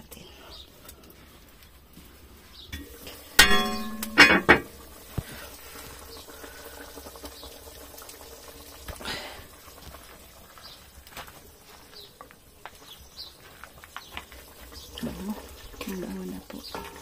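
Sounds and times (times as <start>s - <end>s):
stew simmering in a pot: 0.0s - 17.0s
metal lid clanking: 2.8s - 4.8s.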